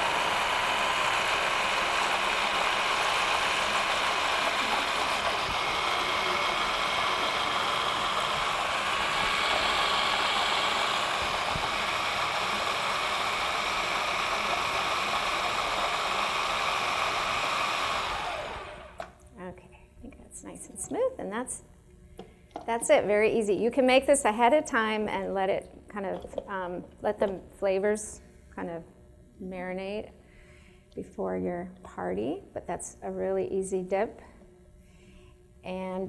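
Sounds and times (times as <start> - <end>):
food processor running: 0.0 - 19.2.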